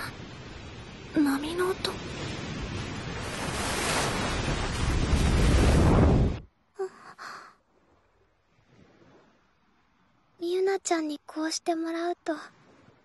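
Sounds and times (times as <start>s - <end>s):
ocean waves rushing: 0.0s - 6.5s.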